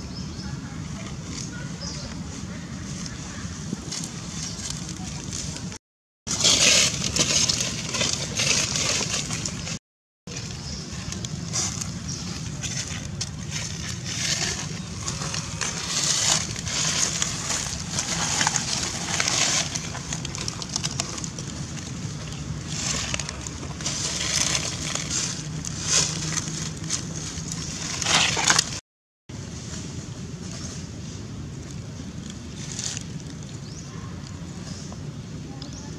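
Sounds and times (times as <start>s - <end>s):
dry leaves crunching and rustling: 0.8s - 34.3s.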